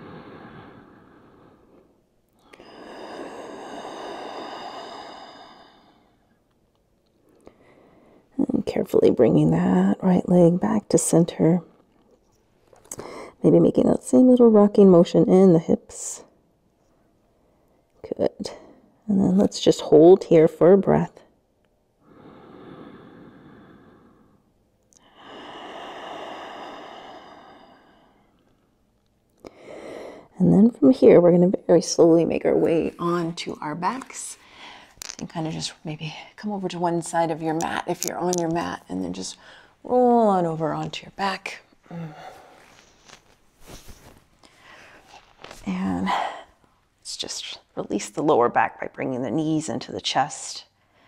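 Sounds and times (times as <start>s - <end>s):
woman breathing in: 0.0s - 6.3s, 22.0s - 28.5s, 29.4s - 30.3s, 34.4s - 35.1s, 44.4s - 45.1s.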